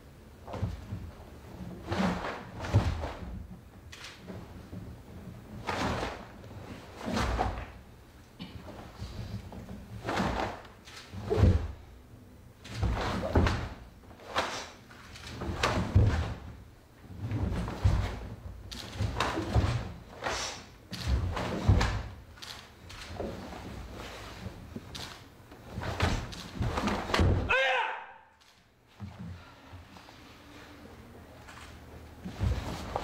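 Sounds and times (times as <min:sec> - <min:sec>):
bare feet on wooden floor: 0:28.9 - 0:30.7, 0:31.4 - 0:33.0.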